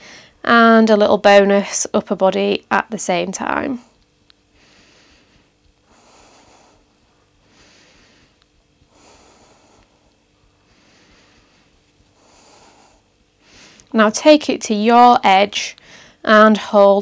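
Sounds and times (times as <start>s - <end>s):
person breathing softly: 4.5s - 13.9s, 15.8s - 16.2s.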